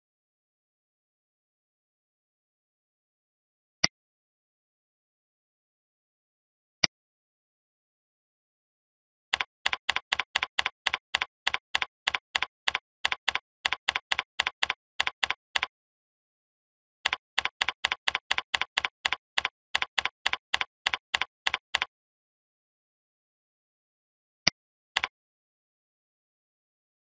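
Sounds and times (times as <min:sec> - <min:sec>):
computer keyboard typing: 0:09.3 - 0:15.7, 0:17.0 - 0:21.9.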